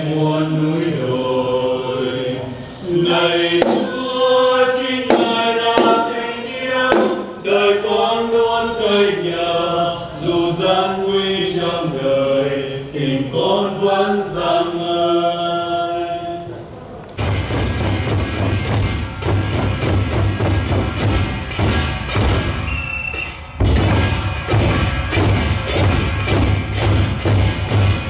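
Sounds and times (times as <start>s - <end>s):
choir singing a slow hymn: 0.0s - 16.9s.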